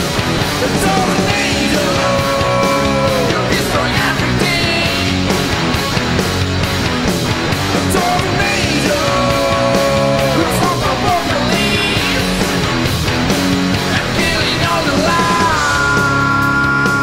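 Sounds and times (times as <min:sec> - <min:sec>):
drum beat: 0:00.0 - 0:16.7
rock band playing: 0:00.0 - 0:17.0
person singing long notes: 0:00.6 - 0:05.2, 0:07.9 - 0:12.4.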